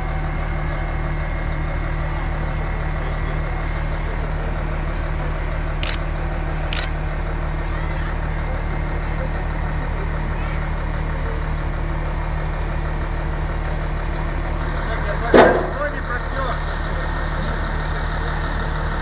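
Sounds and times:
diesel engine running: 0:00.0 - 0:19.0
sharp clicks: 0:05.8 - 0:06.0.

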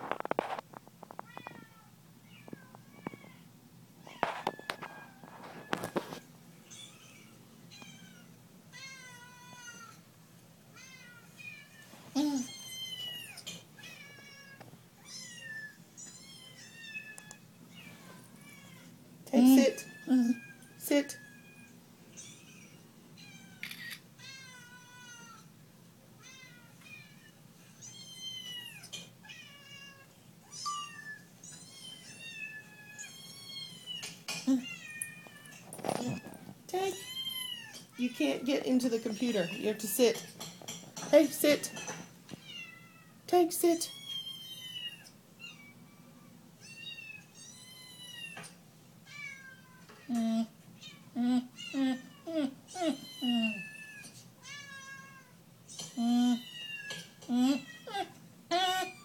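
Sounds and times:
recorded cat meowing: 0:49.1 - 0:59.0.

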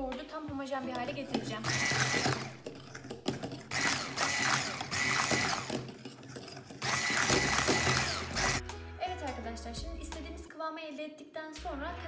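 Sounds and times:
electric hand mixer whining: 0:01.6 - 0:02.6, 0:03.7 - 0:06.0, 0:06.7 - 0:08.6.

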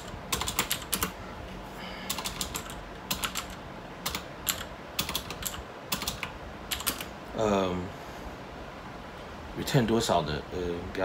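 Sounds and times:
keyboard keys clicking: 0:00.0 - 0:01.1, 0:02.1 - 0:07.1.

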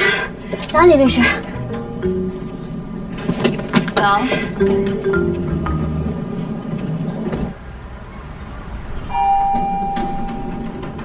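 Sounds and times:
elevator chime ding: 0:00.8 - 0:02.8, 0:04.6 - 0:06.7, 0:09.1 - 0:11.0.

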